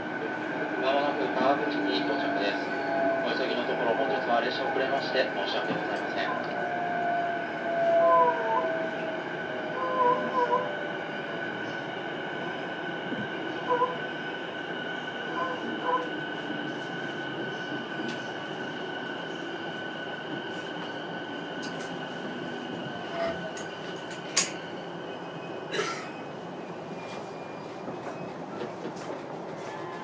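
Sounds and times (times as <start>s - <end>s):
train motor hum and whine: 15.3s - 25.6s.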